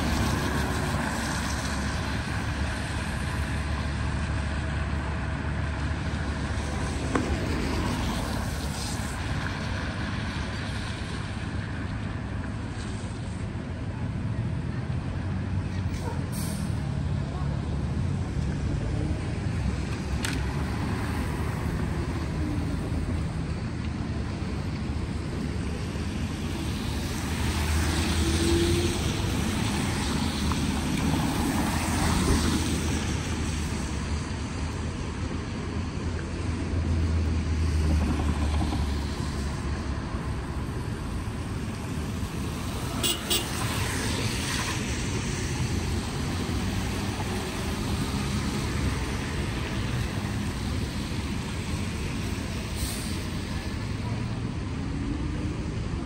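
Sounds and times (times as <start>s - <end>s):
tyres hissing on wet pavement: 0.0s - 4.5s, 5.7s - 13.5s, 15.8s - 17.2s, 19.2s - 38.0s, 38.7s - 55.8s
car engines passing: 0.0s - 56.0s.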